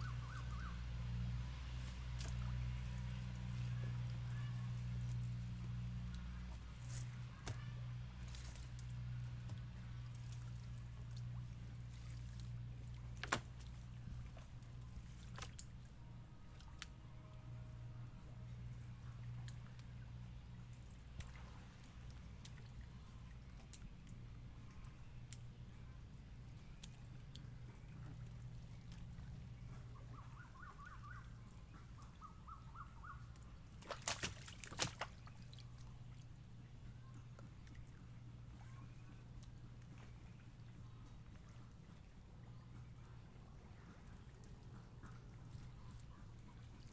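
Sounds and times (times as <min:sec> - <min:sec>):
fish and net handled in boat: 0:00.0 - 0:46.9
steady low hum: 0:00.0 - 0:46.9
wet net being pulled: 0:11.8 - 0:14.4, 0:33.8 - 0:35.3.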